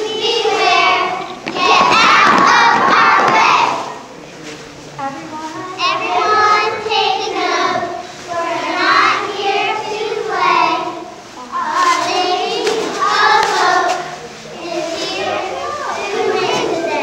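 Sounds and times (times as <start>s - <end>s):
girls chanting a cheer: 0.0s - 4.1s, 5.7s - 17.0s.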